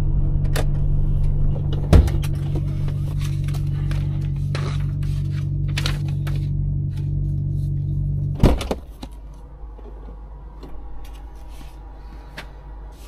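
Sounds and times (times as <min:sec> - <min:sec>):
engine stopping clunk: 0:00.0 - 0:07.4
diesel engine idling: 0:00.0 - 0:13.0.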